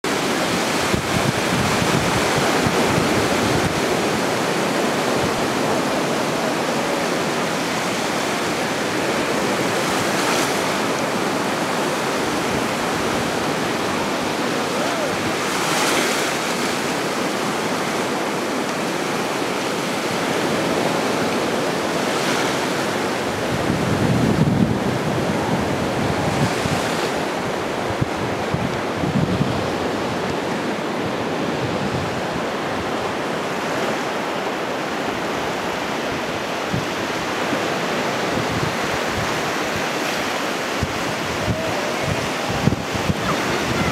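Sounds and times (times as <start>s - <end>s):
ocean waves breaking on beach: 0.0s - 43.9s
wind rumbling on microphone: 0.0s - 43.9s.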